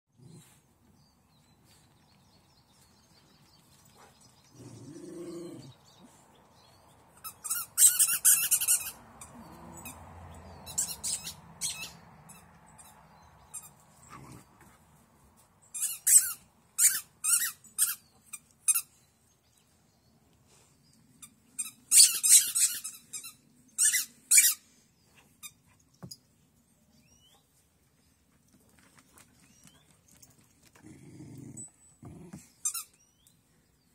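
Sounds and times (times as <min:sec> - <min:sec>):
high-pitched squeaks: 0:07.2 - 0:10.0, 0:10.6 - 0:13.0.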